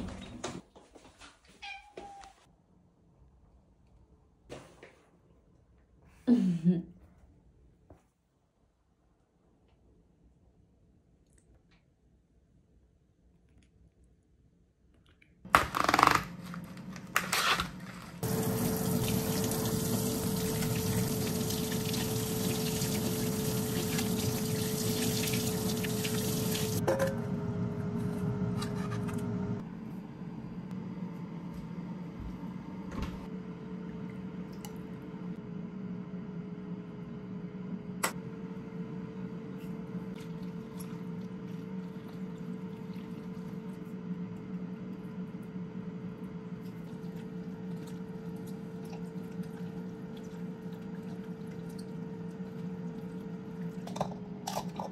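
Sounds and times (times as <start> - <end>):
tap water running into metal sink: 18.2 - 26.8
steady hum: 18.2 - 40.1.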